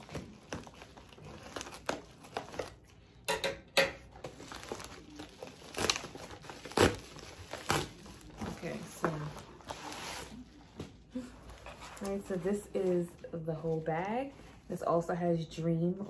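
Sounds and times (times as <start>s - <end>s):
plastic bag crinkling: 0.0s - 3.0s, 4.1s - 10.8s
scissors cutting plastic: 4.2s - 8.5s.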